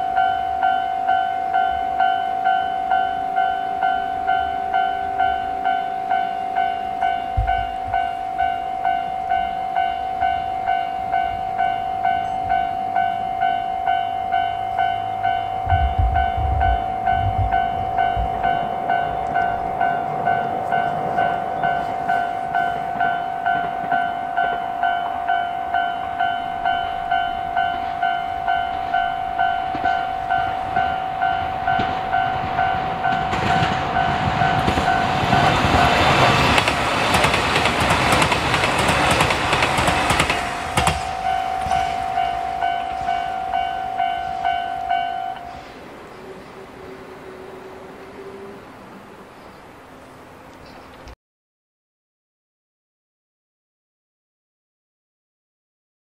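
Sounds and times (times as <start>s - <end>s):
level crossing alarm bell: 0.0s - 36.6s, 40.2s - 45.7s
diesel train passing: 0.0s - 51.1s.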